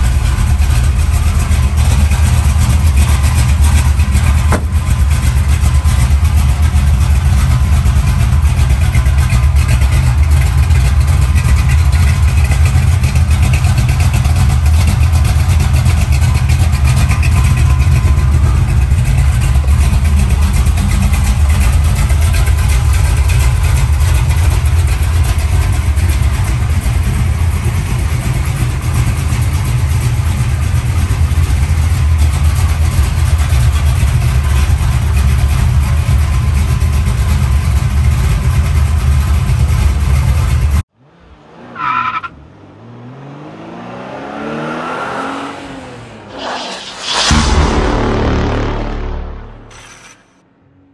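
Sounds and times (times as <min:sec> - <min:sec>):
car engine idling: 0:00.0 - 0:43.5.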